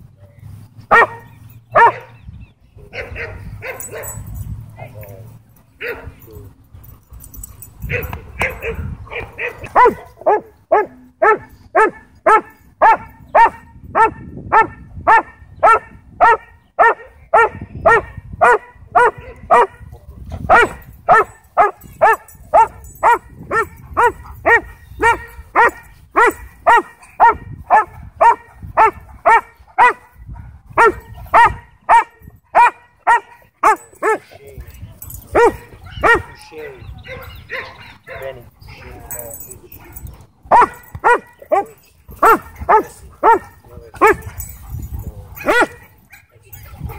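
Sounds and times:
dog barking: 0:00.9 - 0:02.2, 0:02.9 - 0:04.2, 0:07.9 - 0:19.9, 0:20.5 - 0:34.3, 0:35.3 - 0:36.4, 0:37.0 - 0:38.4, 0:39.8 - 0:44.4, 0:45.4 - 0:46.9.

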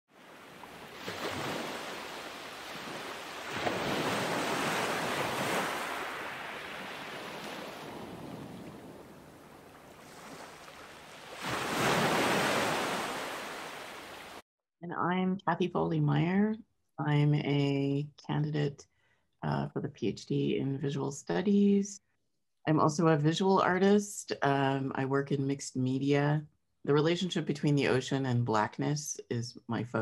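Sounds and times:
ocean waves breaking: 0:00.1 - 0:14.4.

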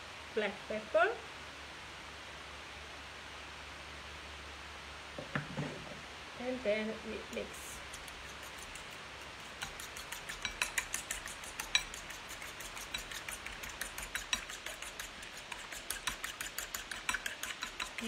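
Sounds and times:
utensil clicking against bowl: 0:07.7 - 0:18.0.

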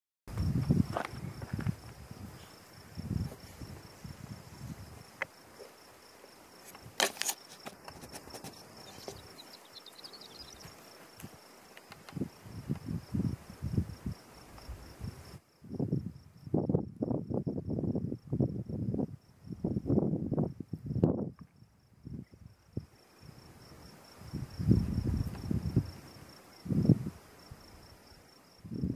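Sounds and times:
bird trilling: 0:08.8 - 0:10.7.

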